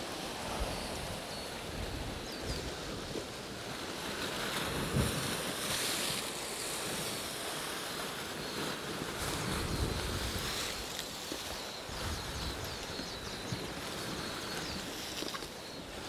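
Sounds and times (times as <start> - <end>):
surf breaking on rocks: 0.0 - 16.0
wind on microphone: 0.0 - 16.0.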